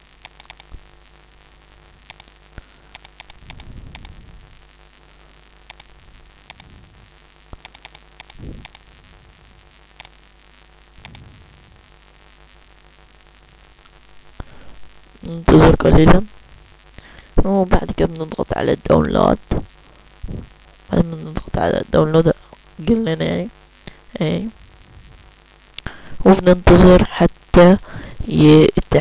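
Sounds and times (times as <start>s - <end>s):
electrical hum and hiss: 0.0s - 29.0s
computer mouse clicking: 0.1s - 0.8s, 2.1s - 4.2s, 5.7s - 5.9s, 6.5s - 6.7s, 7.5s - 8.8s, 11.0s - 11.2s
soft low rumbles: 1.8s - 10.1s, 10.9s - 23.1s.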